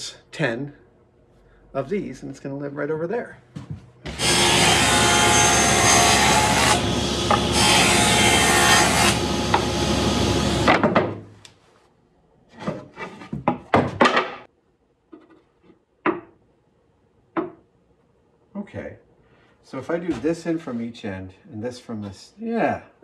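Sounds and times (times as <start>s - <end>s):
table saw cutting wood: 4.1s - 10.8s.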